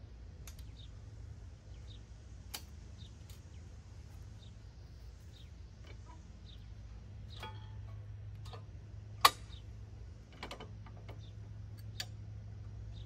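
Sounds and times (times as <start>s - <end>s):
steady low hum: 0.0s - 13.0s
sharp metallic clicks: 2.4s - 3.5s, 7.3s - 9.7s.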